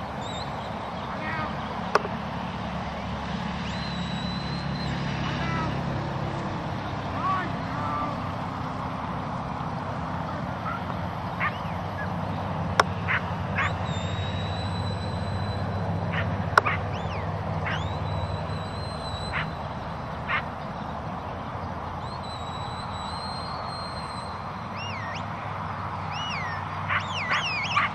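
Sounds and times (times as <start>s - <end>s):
sharp clicks: 1.9s - 2.2s
shepherd's whistle: 3.6s - 5.6s, 13.1s - 19.6s, 22.0s - 25.3s, 26.1s - 27.9s
short sharp calls: 3.6s - 9.3s, 10.2s - 20.6s, 26.1s - 27.9s.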